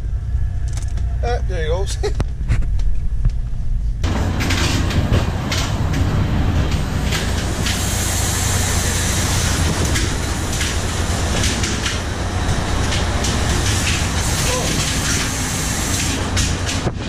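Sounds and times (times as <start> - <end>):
boat engine droning: 0.0 - 2.0, 4.0 - 17.0
wind and sea rushing: 2.4 - 17.0
spray splashing aboard: 4.1 - 16.8.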